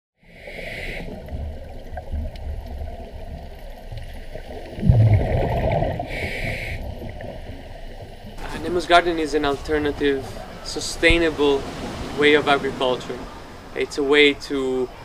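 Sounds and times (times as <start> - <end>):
regulator hissing inhale: 0.2 - 1.1, 6.1 - 6.8
gurgling exhaled bubbles: 0.4 - 8.4
underwater rumble: 1.0 - 13.9.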